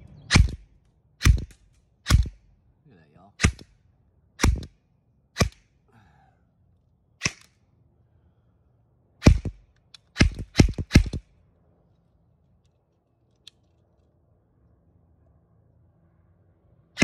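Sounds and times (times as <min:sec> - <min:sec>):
airsoft rifle shots: 0:00.3 - 0:02.5, 0:03.4 - 0:03.8, 0:04.4 - 0:05.7, 0:07.2 - 0:07.6, 0:09.2 - 0:11.3.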